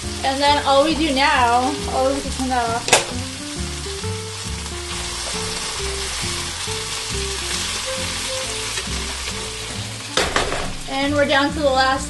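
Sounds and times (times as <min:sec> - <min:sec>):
background music: 0:00.0 - 0:12.0
meat and onions sizzling in a pan: 0:00.0 - 0:12.0.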